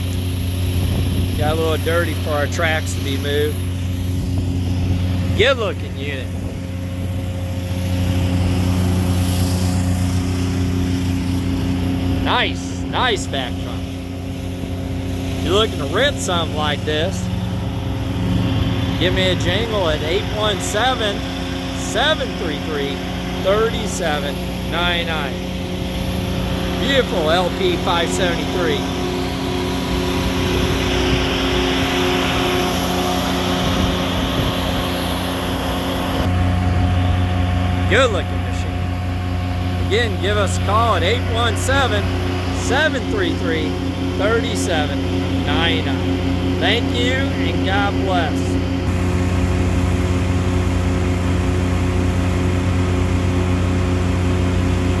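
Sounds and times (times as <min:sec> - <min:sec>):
broad hiss: 0:00.0 - 0:25.0
vacuum excavator engine humming: 0:00.0 - 0:55.0.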